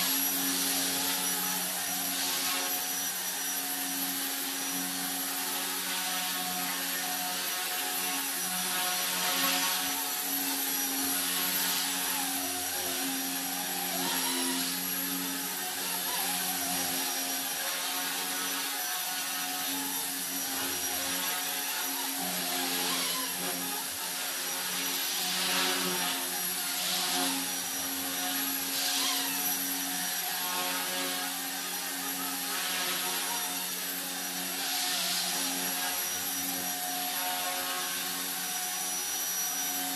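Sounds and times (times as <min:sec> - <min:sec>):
rc helicopter buzzing whine: 0:00.0 - 0:39.9.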